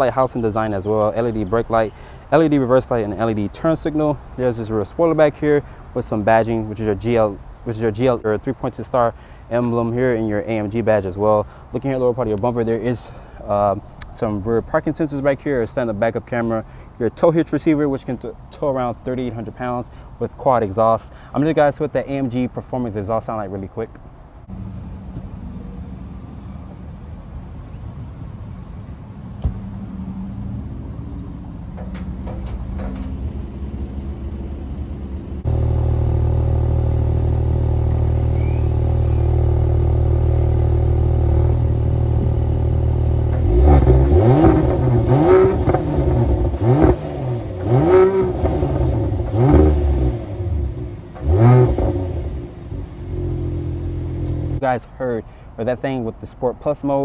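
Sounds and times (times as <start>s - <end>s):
car exhaust idling and revving: 29.0s - 54.6s.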